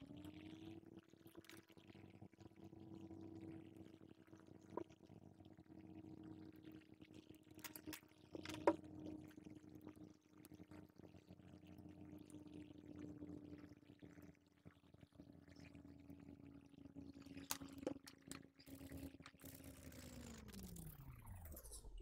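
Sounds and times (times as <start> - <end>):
small clicks and taps: 7.4 - 9.2, 17.3 - 19.5.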